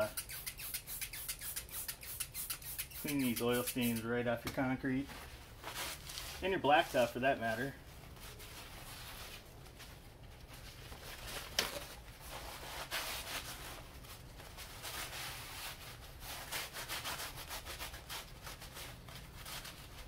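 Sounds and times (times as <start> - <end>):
paper towels scrubbing concrete: 0.0 - 4.3, 5.7 - 9.7.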